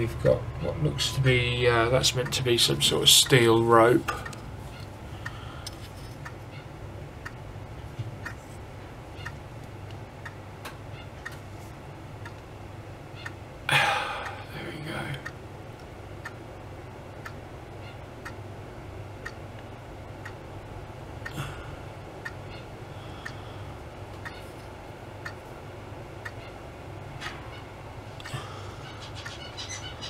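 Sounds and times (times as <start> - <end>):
low room hum: 0.0 - 30.0
clock ticking: 0.2 - 5.4, 8.2 - 8.4, 15.1 - 16.4, 17.2 - 18.5, 19.2 - 20.5, 22.2 - 22.6, 25.2 - 25.4, 26.2 - 26.6.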